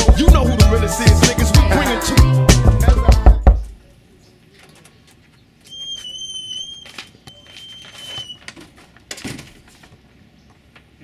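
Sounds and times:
scraping rustle: 0:04.5 - 0:10.1
high whistling squeal: 0:05.7 - 0:08.4.

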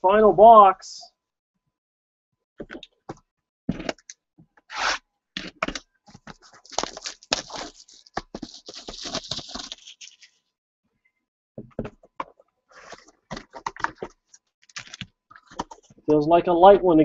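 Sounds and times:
plastic shrink wrap crinkling and tearing: 0:06.2 - 0:10.4, 0:12.8 - 0:15.6.

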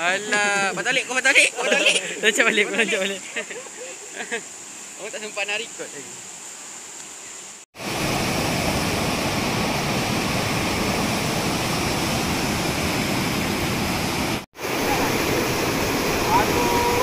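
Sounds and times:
waterfall rushing over rocks: 0:04.4 - 0:17.0.

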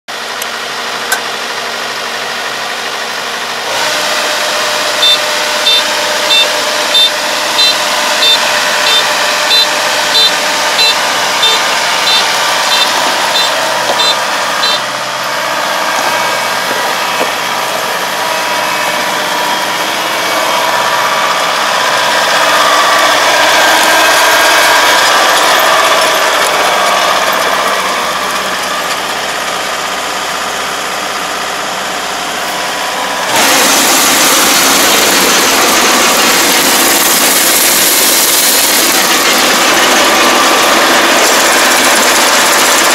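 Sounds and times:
diesel engine running: 0:00.1 - 0:42.9
short high warning beeps: 0:05.0 - 0:14.9.

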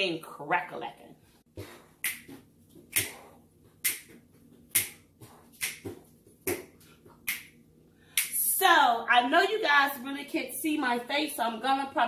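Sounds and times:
short sharp snaps: 0:05.6 - 0:05.9, 0:07.3 - 0:07.6.

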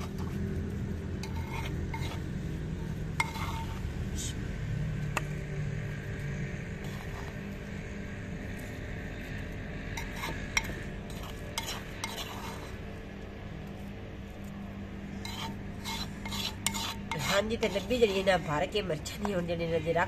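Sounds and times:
spoon scraping clay pot: 0:00.0 - 0:00.4, 0:01.2 - 0:04.4, 0:06.6 - 0:07.9, 0:09.4 - 0:13.0, 0:15.1 - 0:20.0.

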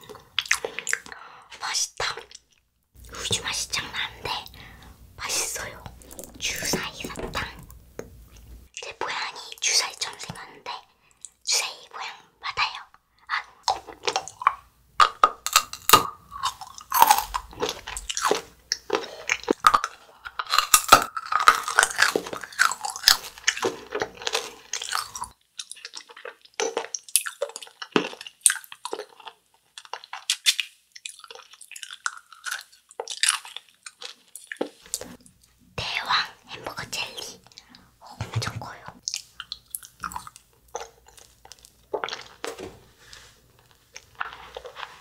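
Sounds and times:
hard candy crunching: 0:13.6 - 0:35.1, 0:39.0 - 0:42.4.

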